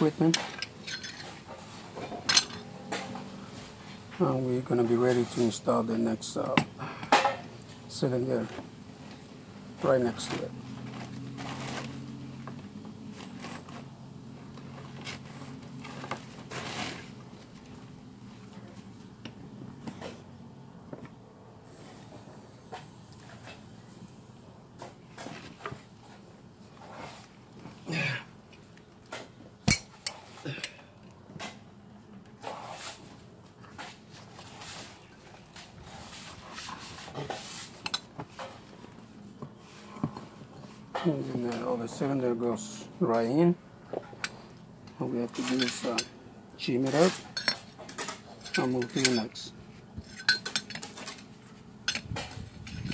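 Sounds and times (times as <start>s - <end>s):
low steady hum: 0.0s - 52.9s
bottle jack scraping and knocking: 0.2s - 3.3s, 45.3s - 46.2s, 46.8s - 52.9s
metal clanks and knocks: 0.2s - 3.4s.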